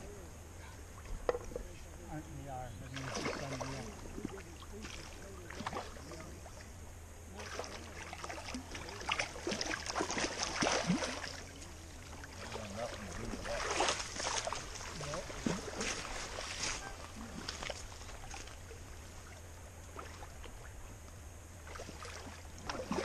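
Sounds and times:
fish thrashing and splashing in water: 2.9s - 6.3s, 7.4s - 18.8s, 21.6s - 23.0s.

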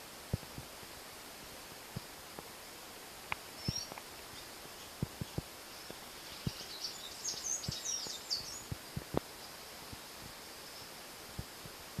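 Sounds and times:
steady hiss: 0.0s - 12.0s
bird chirping: 3.5s - 11.0s.

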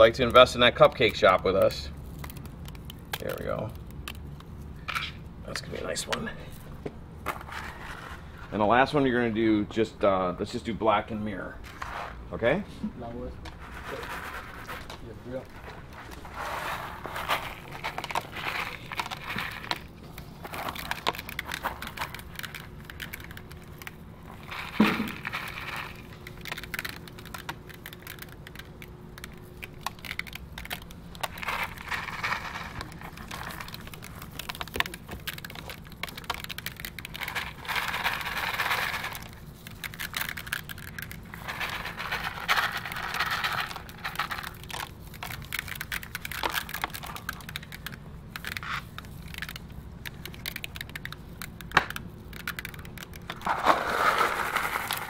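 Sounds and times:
crushed glass crackling and clicking: 0.0s - 5.2s, 17.3s - 53.4s.

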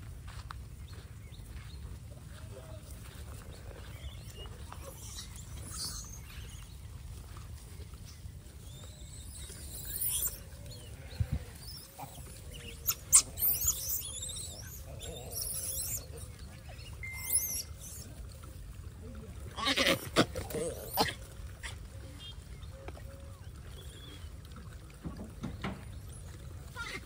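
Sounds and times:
monkeys squeaking and squealing: 3.9s - 6.6s, 8.7s - 10.8s, 11.6s - 18.1s.

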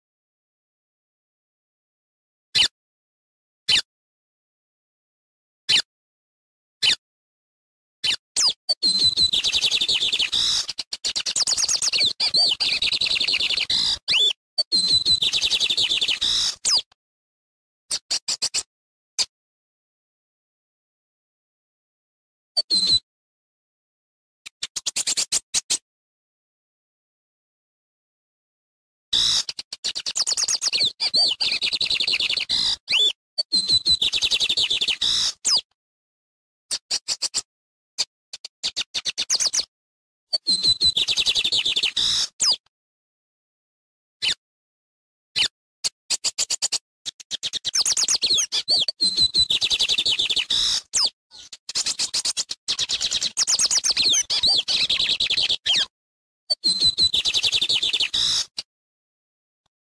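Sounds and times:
bird twittering and trilling: 8.0s - 17.0s, 17.9s - 18.7s, 22.6s - 23.0s, 24.6s - 25.8s, 29.1s - 35.7s, 36.7s - 37.5s, 38.4s - 39.7s, 40.3s - 42.6s, 46.1s - 55.9s, 56.5s - 58.7s.

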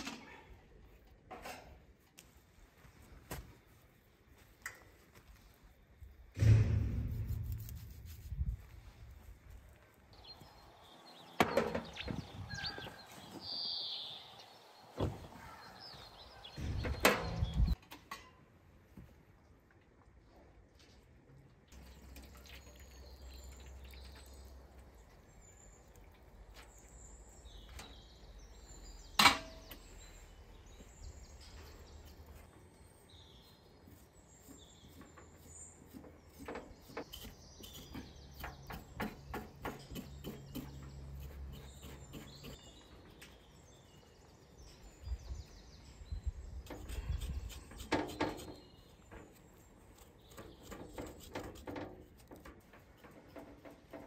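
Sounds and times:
sharp knock: 6.4s - 8.4s
birds chirping: 8.7s - 17.8s, 21.7s - 54.0s.

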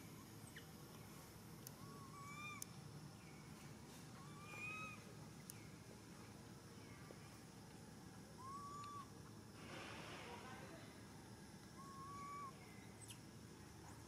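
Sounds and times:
infant monkey crying coo calls: 1.8s - 2.6s, 4.2s - 5.0s, 8.4s - 9.1s, 11.8s - 12.6s.

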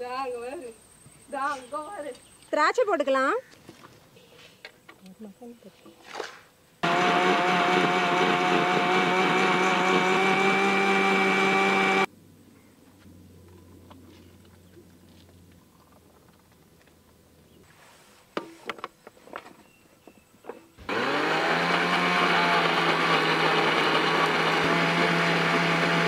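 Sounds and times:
mixer grinder running: 6.8s - 12.1s, 20.8s - 26.0s.

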